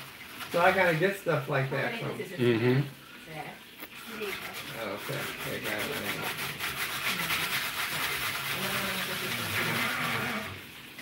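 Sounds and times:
hand-cranked shredder grating cabbage: 0.0s - 1.4s, 4.0s - 10.6s.

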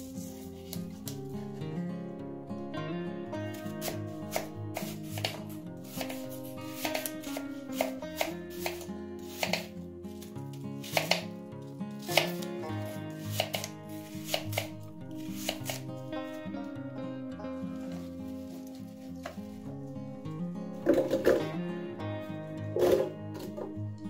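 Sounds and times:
knife cutting apple: 3.5s - 16.1s.

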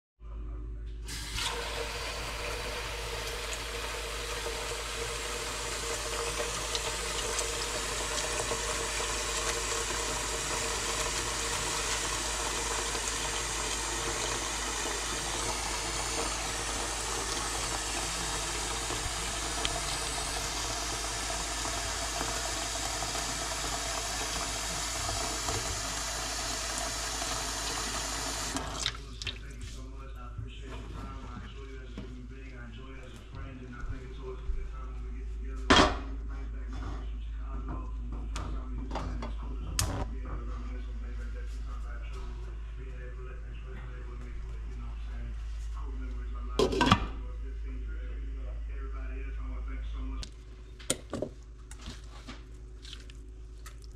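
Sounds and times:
tap water filling a metal pot: 1.1s - 29.5s.

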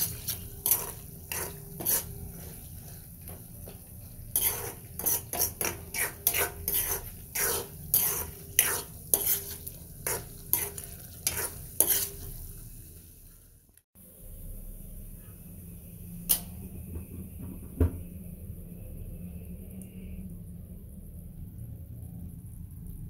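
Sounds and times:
spatula scraping a wok: 0.0s - 13.0s
gravy sizzling: 0.0s - 13.8s.

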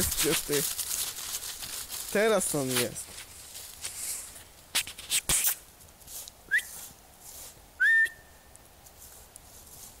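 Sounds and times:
rustling: 0.0s - 7.7s, 8.7s - 10.0s
person whistling: 6.5s - 6.8s, 7.8s - 8.3s.

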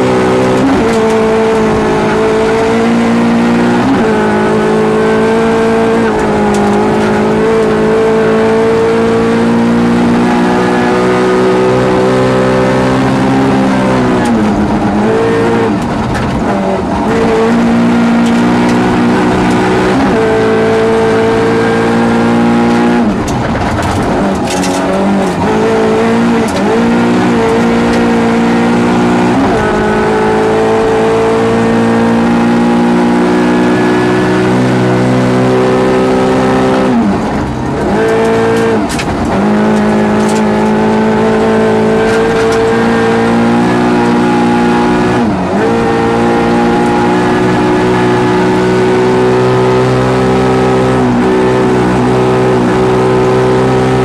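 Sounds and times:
rally car engine revving: 0.0s - 54.0s.

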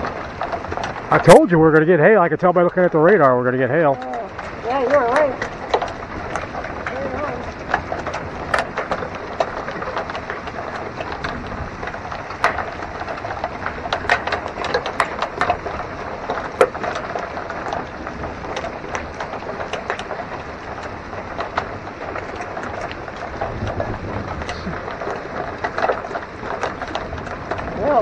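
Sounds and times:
hailstones clicking on hard surfaces: 0.0s - 28.0s
rain hissing: 22.9s - 25.6s.

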